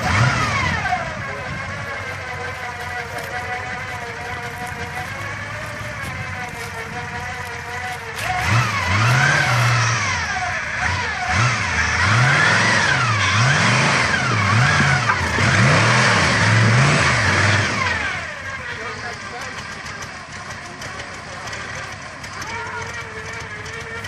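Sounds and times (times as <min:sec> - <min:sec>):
engine revving up and down: 0:00.0 - 0:24.0.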